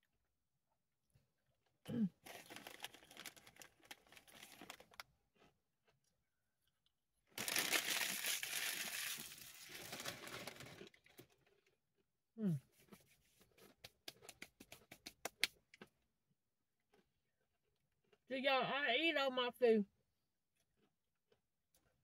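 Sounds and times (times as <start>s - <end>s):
plastic chip bag crinkling: 2.2s - 5.5s, 7.4s - 11.6s.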